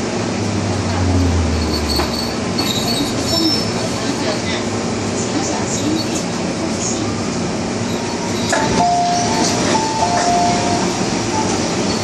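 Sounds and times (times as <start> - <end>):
train wheels rumbling: 0.0 - 7.0
falling two-note chime: 0.8 - 2.4.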